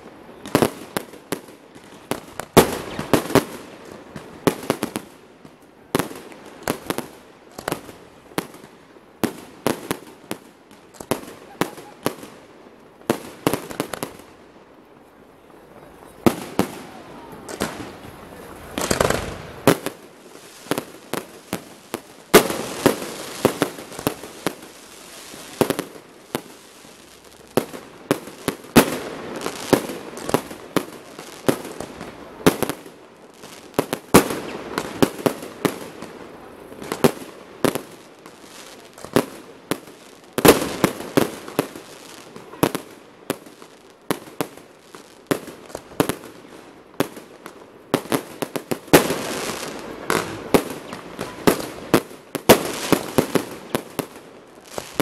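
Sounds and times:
fireworks crackling: 0.0s - 55.0s
firework shells bursting: 17.5s - 20.0s.

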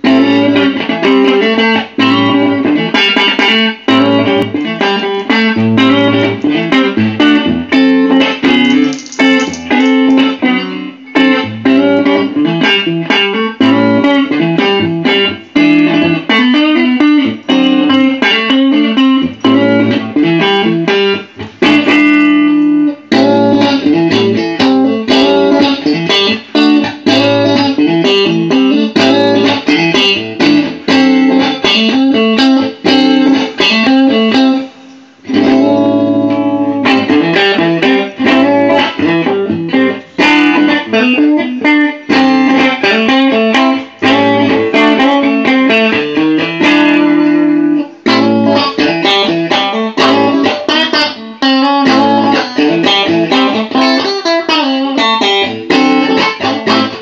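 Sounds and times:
electric guitar playing: 0.0s - 57.0s.

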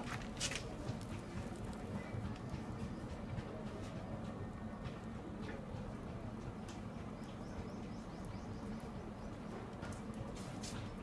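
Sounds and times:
potter's wheel rumbling: 0.0s - 4.4s.

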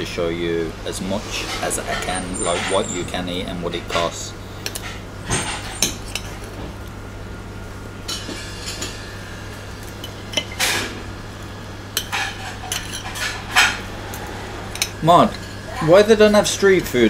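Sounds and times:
knife and fork scraping plate: 1.4s - 3.1s, 12.0s - 13.8s.

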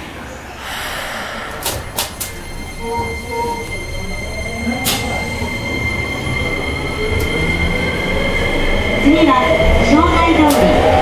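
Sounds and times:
low rumble: 0.3s - 4.7s
steady high tone: 0.5s - 10.4s.

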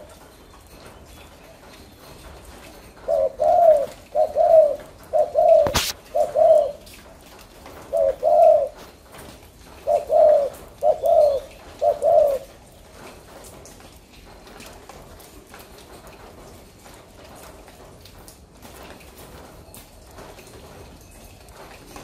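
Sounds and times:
dove cooing: 2.4s - 7.0s, 7.7s - 9.0s, 9.6s - 12.9s.

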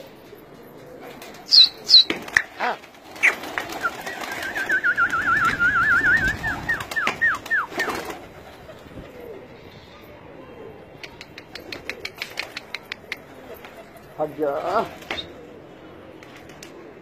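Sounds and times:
pigeons cooing: 0.0s - 17.0s
pigeons flapping wings: 0.4s - 9.3s, 11.3s - 15.4s, 16.2s - 17.0s
whistled trill: 3.8s - 7.8s
quick falling whistles: 3.8s - 7.9s.

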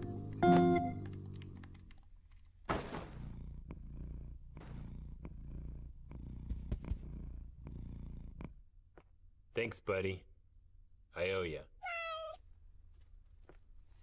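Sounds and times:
cat purring: 0.0s - 2.2s, 2.8s - 8.7s.

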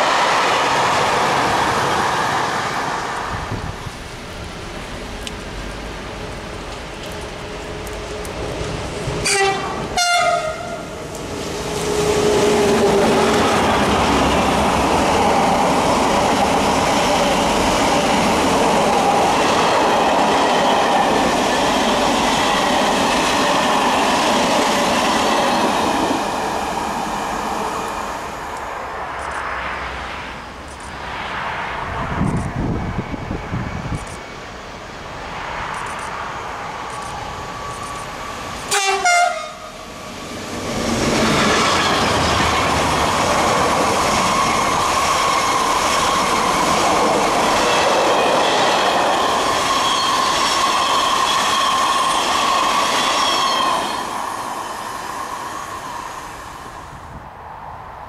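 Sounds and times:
train approaching: 0.0s - 58.0s
train wheels rushing on rails: 0.0s - 58.0s
locomotive horn blasts: 9.2s - 10.9s, 38.7s - 39.8s.

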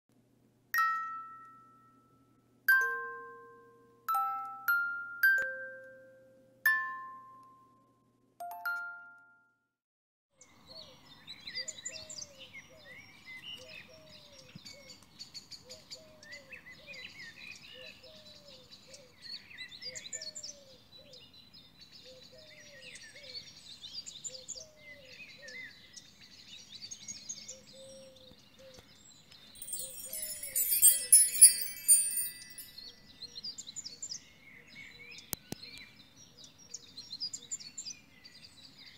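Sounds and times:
chime jingle: 2.7s - 5.9s, 29.6s - 32.8s
birds chirping: 29.6s - 32.9s.

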